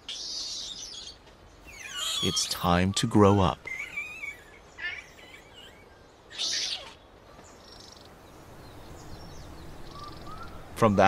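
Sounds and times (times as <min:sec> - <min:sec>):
infant monkey calling: 0:00.0 - 0:07.1
harsh monkey squeal: 0:01.7 - 0:02.8, 0:03.6 - 0:07.0.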